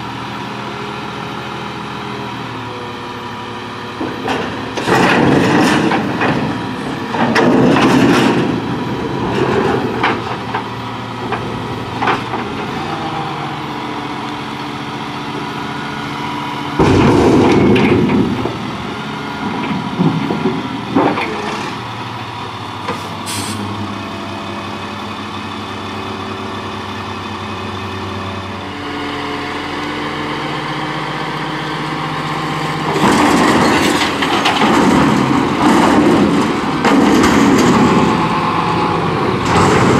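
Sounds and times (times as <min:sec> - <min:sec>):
diesel truck engine running: 0:00.0 - 0:39.9
refuse clattering and banging: 0:04.0 - 0:13.2, 0:16.8 - 0:21.9, 0:32.8 - 0:39.9.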